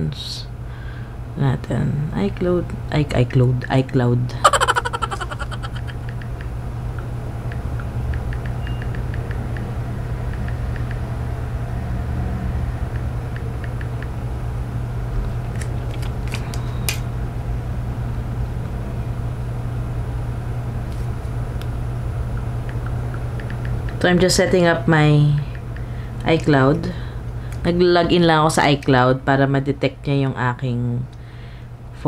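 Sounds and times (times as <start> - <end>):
steady low hum: 12.6 - 32.0.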